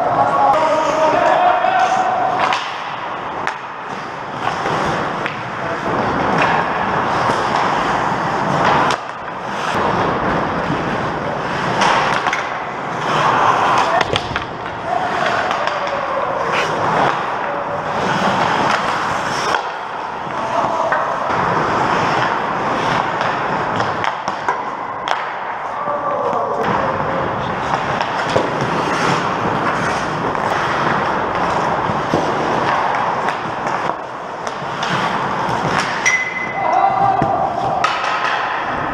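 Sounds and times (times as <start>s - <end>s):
skate blades scraping ice: 0.0s - 25.6s, 26.8s - 38.9s
hockey sticks and puck clacking: 0.0s - 38.9s.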